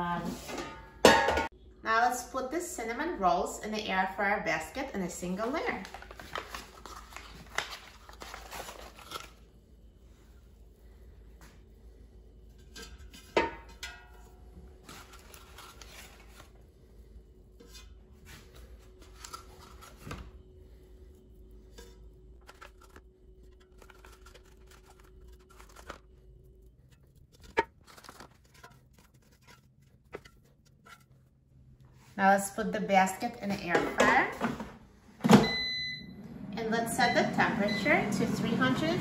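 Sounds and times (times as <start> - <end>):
paper wrapping rustling: 5.4 - 9.4, 14.8 - 16.6, 22.4 - 31.3.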